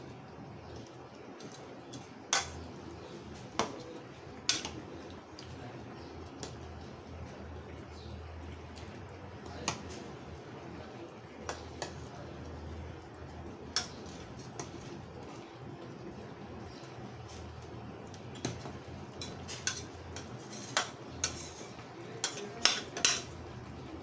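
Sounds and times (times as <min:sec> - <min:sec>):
spoon scraping metal pan: 0:19.2 - 0:23.3.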